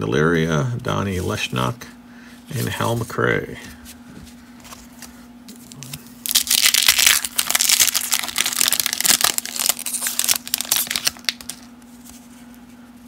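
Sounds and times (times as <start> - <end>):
wrapper crinkling and tearing: 5.7 - 11.7.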